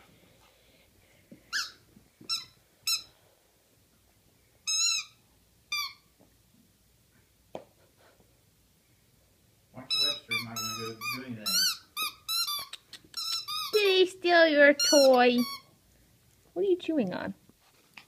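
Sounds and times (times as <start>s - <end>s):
squeaky dog toy squeaking: 1.5s - 3.1s, 4.6s - 6.1s, 9.9s - 14.1s, 14.7s - 15.7s.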